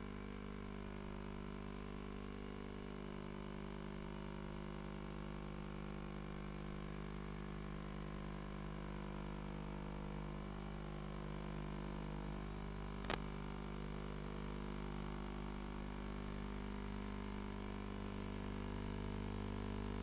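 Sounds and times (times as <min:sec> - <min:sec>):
electrical hum with static hiss: 0:05.1 - 0:20.0.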